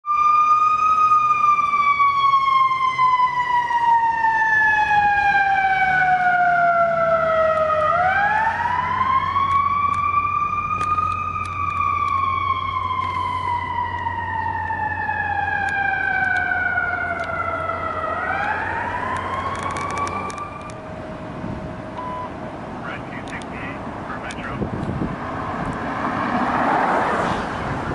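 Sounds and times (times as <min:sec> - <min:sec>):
electronic siren wailing: 0:00.1 - 0:22.3
low engine hum: 0:06.2 - 0:27.9.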